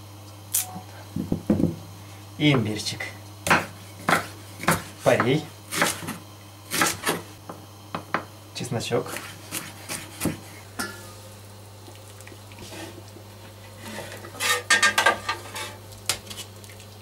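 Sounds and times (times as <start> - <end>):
knife chopping on wooden board: 3.4 - 7.2, 9.1 - 10.4.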